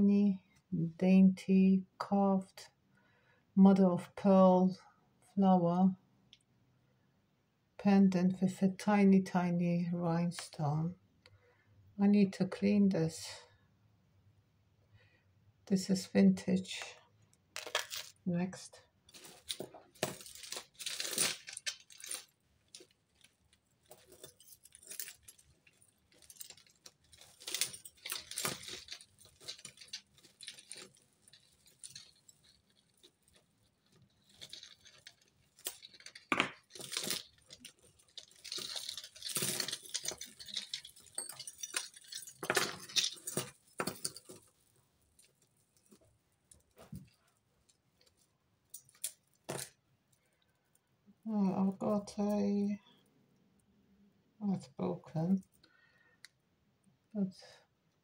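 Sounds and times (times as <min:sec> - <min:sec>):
jewellery jangling and clinking: 0:17.6 - 0:18.2, 0:19.1 - 0:49.7.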